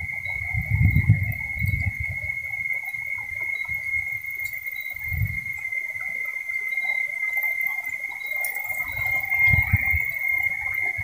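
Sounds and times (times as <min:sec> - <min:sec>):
wind rumble on microphone: 0:00.0 - 0:06.2, 0:08.4 - 0:11.0
cicadas droning: 0:00.0 - 0:11.0.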